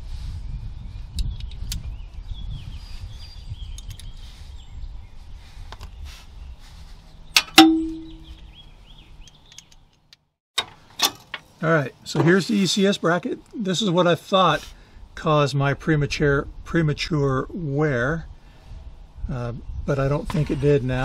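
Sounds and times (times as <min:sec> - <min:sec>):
birds chirping faintly: 0:00.6 - 0:10.1
sharp metal clang: 0:07.4 - 0:08.3.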